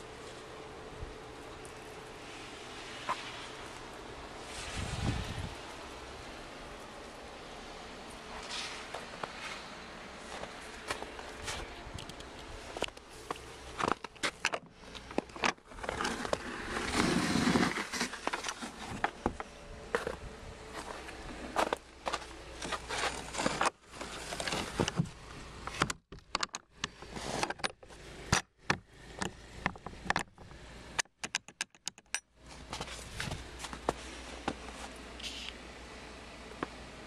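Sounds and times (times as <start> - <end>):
rustling: 0.0 - 25.9, 32.4 - 35.6
metal gate latch clicking and rattling: 31.0 - 32.3.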